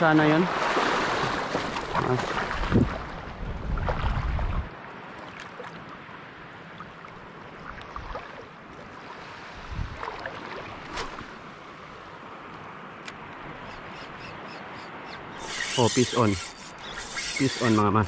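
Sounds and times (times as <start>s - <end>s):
sea water lapping: 0.0s - 12.1s
light wind: 0.0s - 18.0s.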